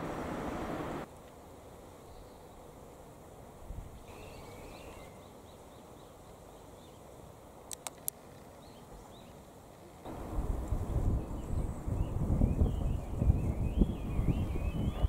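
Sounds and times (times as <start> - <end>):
low rumbling noise: 0.0 - 1.1, 10.1 - 15.0
small birds chirping: 4.0 - 9.5, 11.0 - 15.0
sharp clicks: 7.7 - 8.2.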